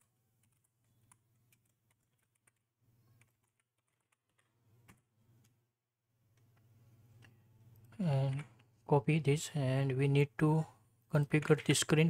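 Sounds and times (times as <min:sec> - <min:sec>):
keystrokes on computer keyboard: 0:00.0 - 0:05.6
low steady hum: 0:04.5 - 0:12.0.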